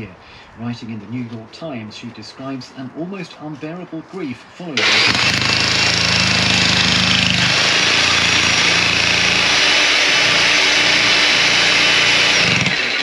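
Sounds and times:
electric breaker hammering concrete: 4.8 - 13.0.

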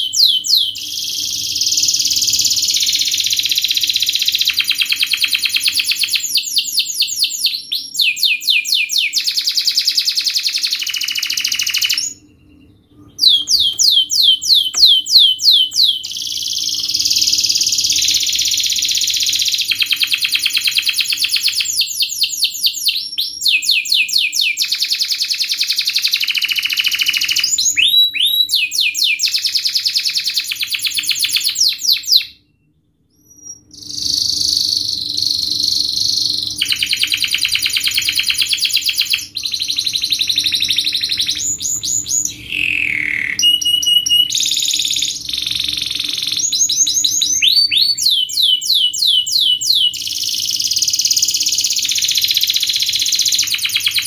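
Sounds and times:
canary singing trills: 0.0 - 54.0
faint low hum: 10.7 - 23.8.

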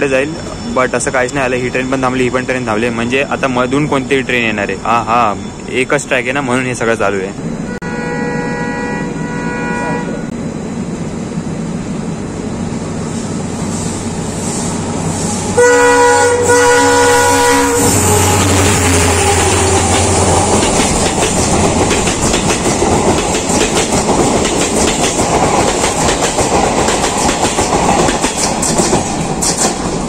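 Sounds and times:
locomotive engine hum: 0.0 - 30.0
train horn blasts: 7.6 - 10.4, 15.5 - 19.8
train wheels clacking: 18.0 - 30.0.

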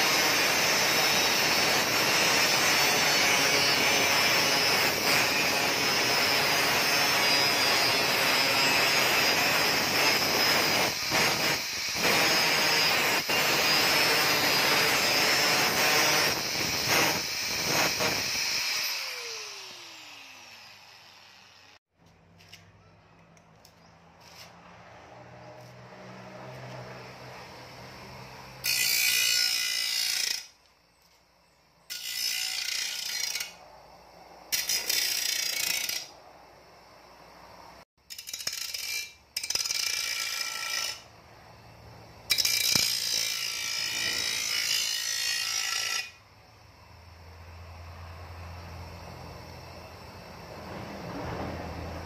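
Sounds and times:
electric motor humming: 0.0 - 21.8
grinding wheel screaming on steel: 0.0 - 21.8, 38.1 - 46.2.

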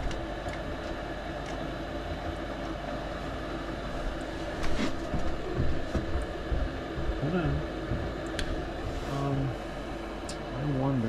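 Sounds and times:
furnace fan motor humming: 0.0 - 11.0.

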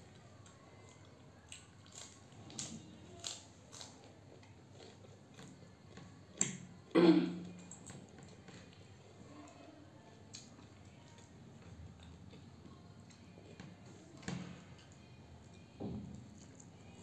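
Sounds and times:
crunching and chewing leaf: 0.0 - 6.6.

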